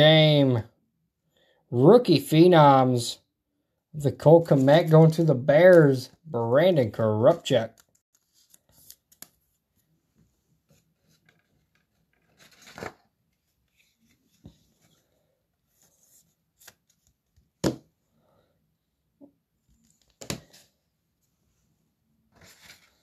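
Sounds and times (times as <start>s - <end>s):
card sliding and rustling: 10.6s - 17.2s, 22.3s - 23.0s.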